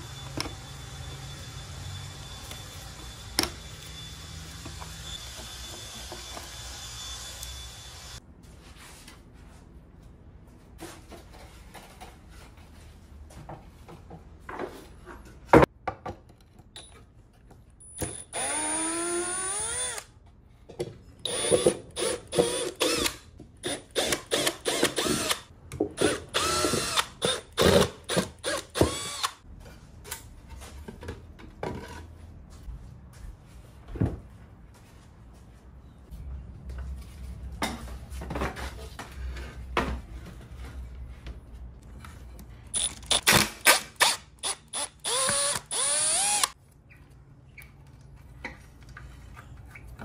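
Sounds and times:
cordless drill driving screws: 0:18.4 - 0:20.1, 0:21.3 - 0:29.4, 0:42.8 - 0:46.6.

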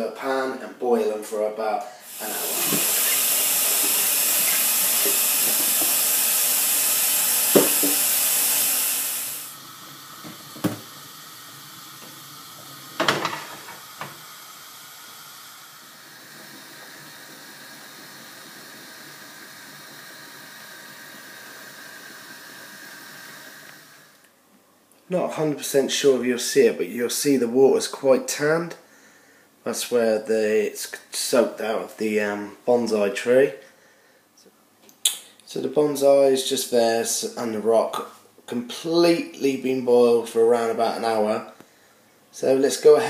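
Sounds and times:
quiet steady hiss: 0:00.0 - 0:43.0
tap running into saucepan: 0:02.5 - 0:06.1, 0:07.5 - 0:08.1, 0:10.2 - 0:11.0, 0:13.0 - 0:14.2.

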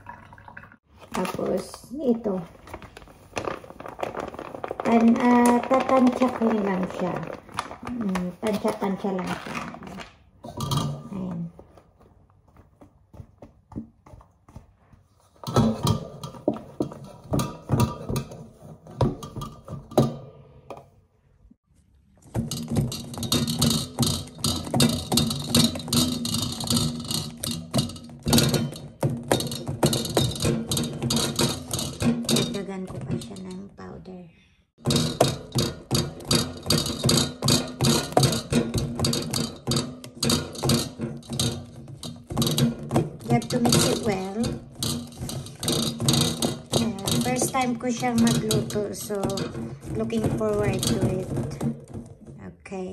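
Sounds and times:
spatula scraping and slapping batter: 0:02.4 - 0:20.2, 0:21.8 - 0:33.7, 0:34.8 - 0:52.4
knocks against a metal bowl: 0:22.3 - 0:33.6, 0:34.8 - 0:52.4
spatula scraping a metal bowl: 0:34.8 - 0:51.7.

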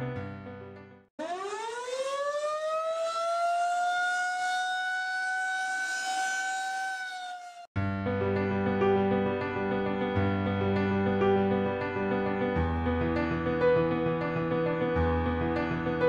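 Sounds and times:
air-raid siren wailing: 0:01.2 - 0:07.7.

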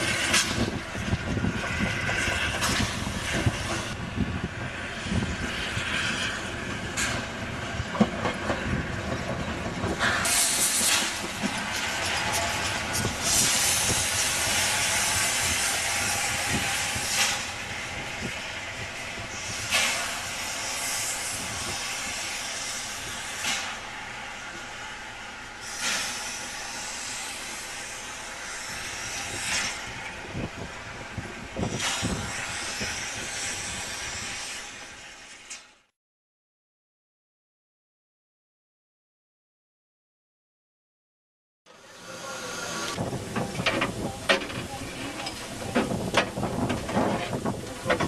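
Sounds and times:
steam locomotive hissing: 0:00.0 - 0:35.7, 0:41.7 - 0:48.0
loud burst of steam: 0:10.0 - 0:24.5, 0:25.2 - 0:30.7, 0:31.6 - 0:35.2.

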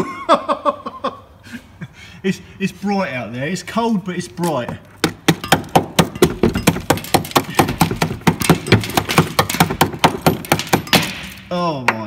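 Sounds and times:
hammer striking metal: 0:05.0 - 0:11.5.

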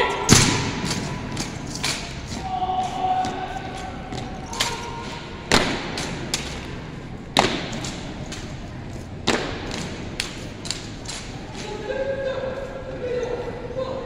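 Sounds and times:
footsteps: 0:00.0 - 0:13.5
rifles striking in unison: 0:00.3 - 0:02.3.

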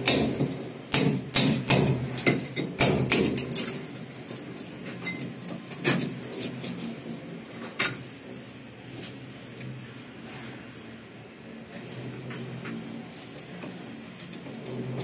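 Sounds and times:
hammer striking chisel: 0:00.0 - 0:03.4.

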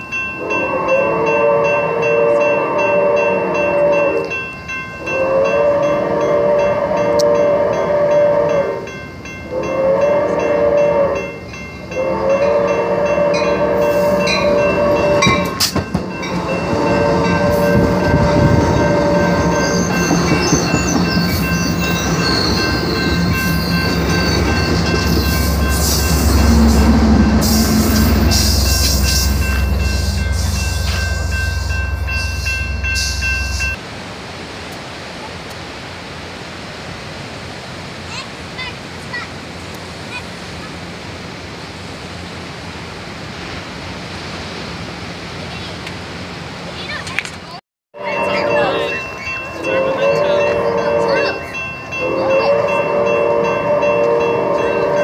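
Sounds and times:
train passing rumble: 0:00.0 - 0:55.0
train horn blasts: 0:00.3 - 0:04.4, 0:05.0 - 0:20.3, 0:22.3 - 0:33.8, 0:49.6 - 0:55.0.

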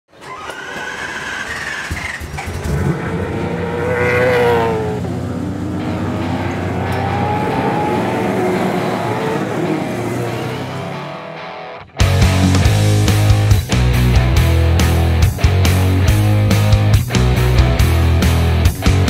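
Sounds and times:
race car engines passing by: 0:01.7 - 0:11.8.

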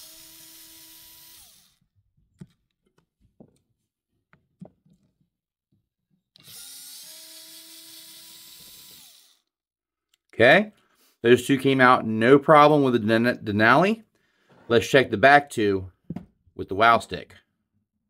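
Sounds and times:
cordless screwdriver whirring: 0:00.0 - 0:01.8, 0:06.4 - 0:09.5.

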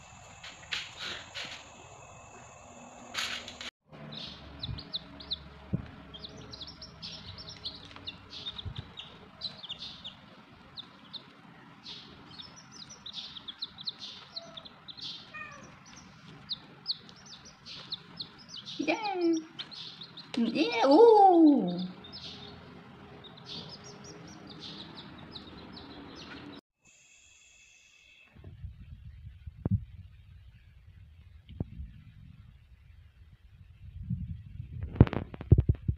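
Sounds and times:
baby chicks peeping: 0:04.0 - 0:26.6.

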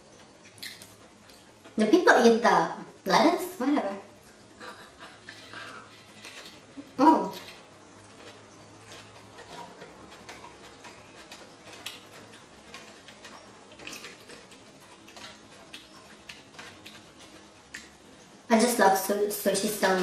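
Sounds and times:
chewing and mouth clicks: 0:00.1 - 0:01.8, 0:04.2 - 0:18.5.

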